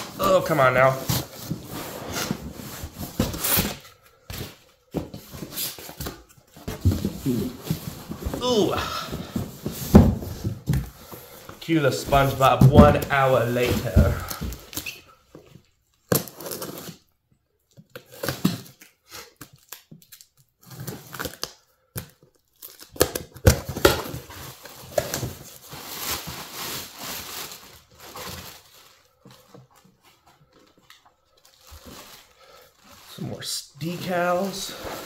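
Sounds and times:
packing tape tearing: 0:16.1 - 0:17.0
plastic wrapping crinkling: 0:22.5 - 0:35.0.

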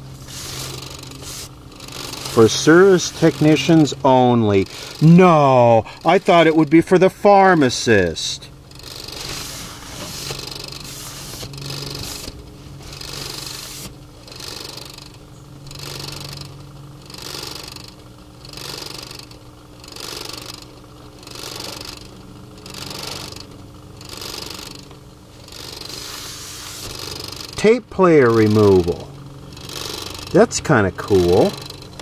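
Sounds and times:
paper wipe swishing over paper: 0:00.2 - 0:01.6, 0:09.2 - 0:12.3, 0:13.5 - 0:13.9, 0:26.0 - 0:27.0.

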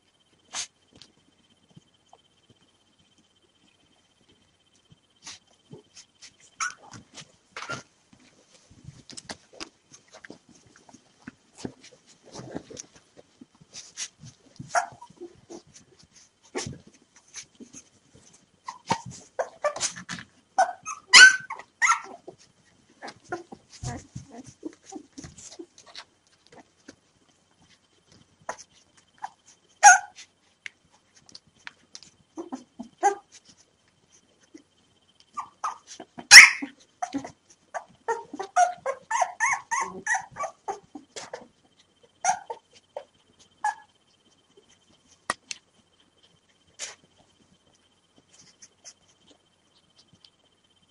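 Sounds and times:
puppies whimpering and squeaking: 0:05.2 - 0:07.9, 0:13.7 - 0:20.0, 0:20.6 - 0:26.7, 0:28.5 - 0:30.3, 0:35.3 - 0:44.0
puppies crying: 0:35.4 - 0:41.4.

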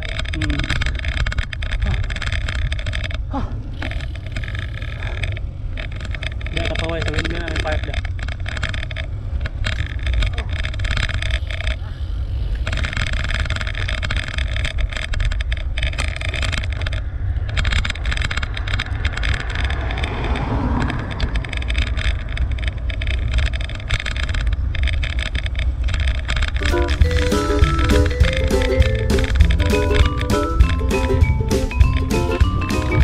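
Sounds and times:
road noise: 0:00.0 - 0:33.0
wind rumble on microphone: 0:05.5 - 0:26.6.

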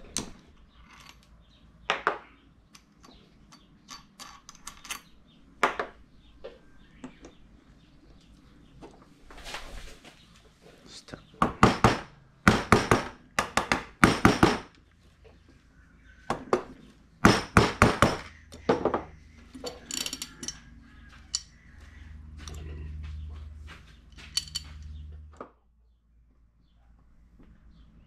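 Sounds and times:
wooden mallet knocking metal: 0:11.4 - 0:14.7, 0:16.3 - 0:19.1.

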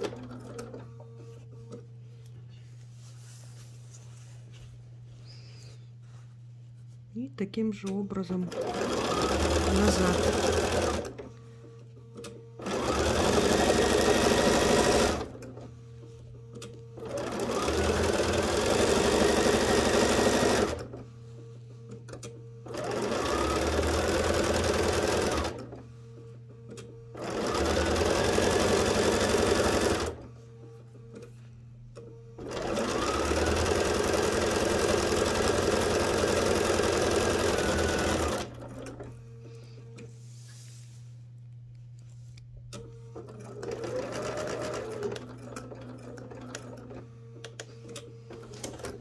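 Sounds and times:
sewing machine stitching: 0:08.4 - 0:11.3, 0:12.6 - 0:15.6, 0:17.0 - 0:21.0, 0:22.6 - 0:25.8, 0:27.2 - 0:30.2, 0:32.4 - 0:39.1, 0:42.8 - 0:47.6.

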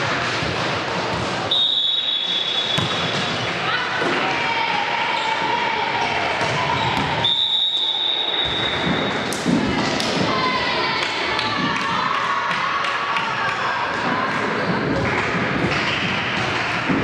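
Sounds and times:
referee whistle: 0:01.5 - 0:03.1, 0:07.2 - 0:09.2
players shouting: 0:02.3 - 0:14.8
ball thuds: 0:02.7 - 0:03.4.

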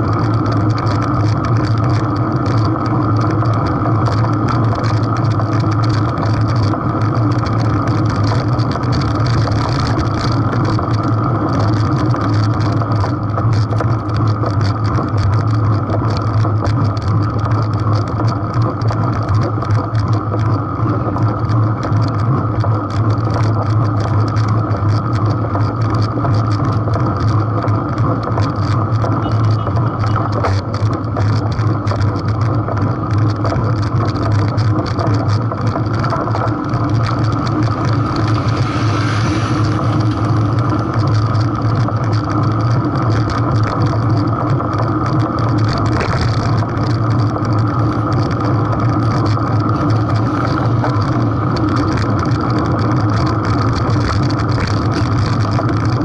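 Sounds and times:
road and wind noise: 0:00.0 - 0:56.0
motor scooter passing: 0:36.2 - 0:42.8.

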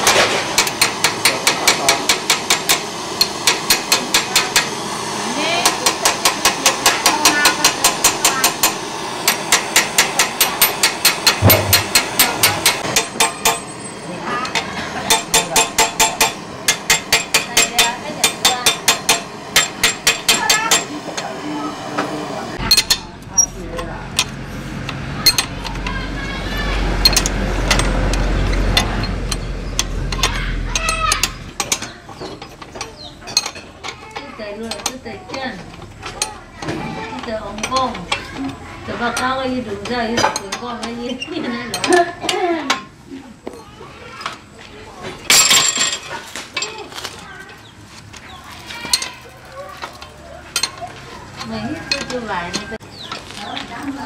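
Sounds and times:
torch hissing: 0:00.0 - 0:23.6
spanner clicking on nut: 0:22.6 - 0:25.9, 0:27.0 - 0:36.7, 0:37.5 - 0:39.3.

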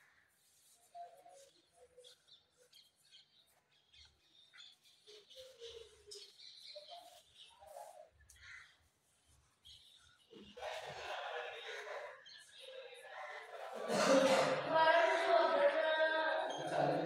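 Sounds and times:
faint high chirps: 0:00.0 - 0:10.7.

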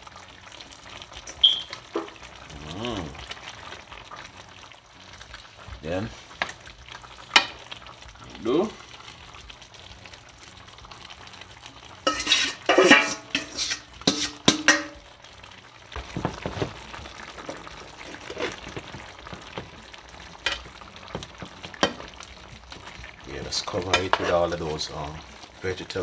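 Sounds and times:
spoon scraping and tapping pan: 0:12.0 - 0:15.0, 0:20.4 - 0:22.0, 0:23.8 - 0:24.4
metal lid clanking on frying pan: 0:12.1 - 0:15.0.

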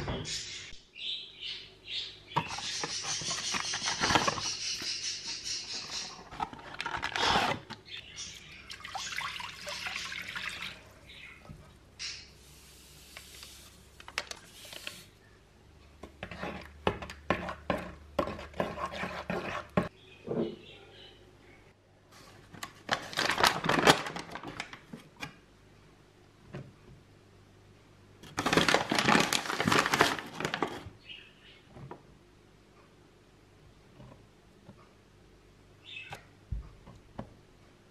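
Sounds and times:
paper bag rustling: 0:02.8 - 0:04.7, 0:22.2 - 0:24.9, 0:28.3 - 0:30.9
paper packet tearing: 0:22.8 - 0:24.8, 0:28.3 - 0:30.8.

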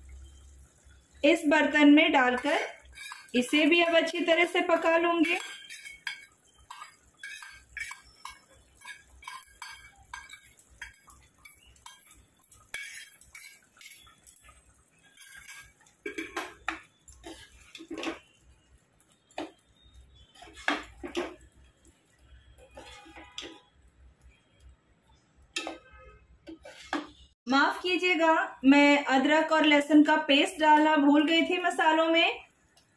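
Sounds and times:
ladle stirring in pressure cooker: 0:02.2 - 0:18.3
spoon scraping metal bowl: 0:02.2 - 0:18.3, 0:20.2 - 0:21.5, 0:22.6 - 0:23.7, 0:25.6 - 0:25.9, 0:26.5 - 0:27.8.

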